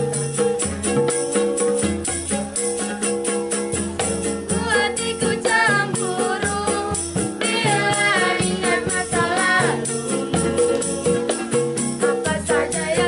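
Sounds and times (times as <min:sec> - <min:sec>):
plastic hand drum beat: 0:00.0 - 0:13.0
tambourine jingling: 0:00.0 - 0:13.0
ukulele strumming: 0:00.0 - 0:13.0
young voices singing pop song: 0:04.4 - 0:13.0.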